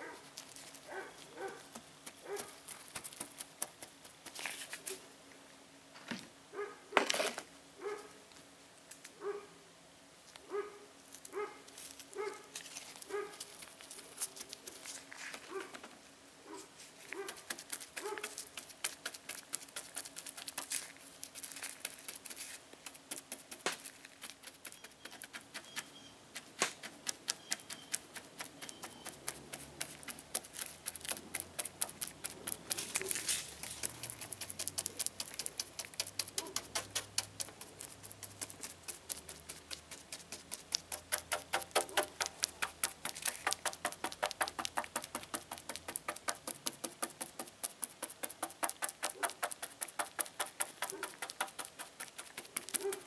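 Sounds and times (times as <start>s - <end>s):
brush squelching wet resin: 0.0s - 5.0s, 11.7s - 15.7s, 16.6s - 53.0s
wet brush dabbing taps: 26.4s - 53.0s.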